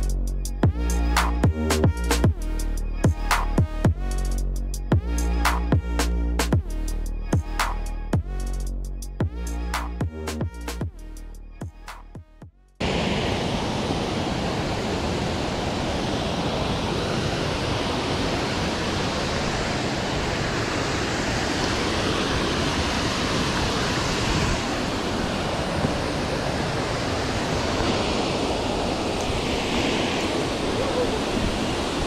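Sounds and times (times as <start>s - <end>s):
waterfall rushing: 12.8s - 32.0s.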